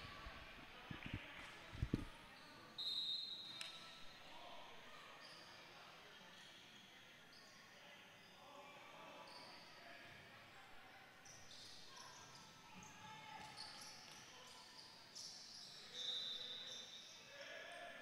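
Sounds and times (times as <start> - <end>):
shoe squeaks: 13.4 - 17.2.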